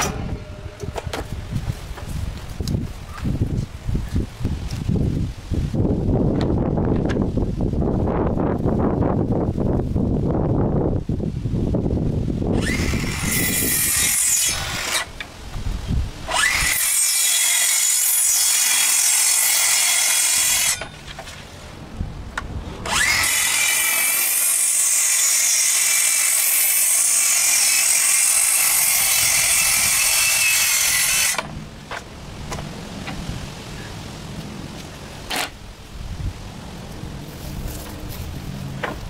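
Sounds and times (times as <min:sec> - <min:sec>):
track saw cutting boards: 0:00.0 - 0:01.4, 0:12.5 - 0:15.3, 0:16.3 - 0:21.3, 0:22.8 - 0:33.2.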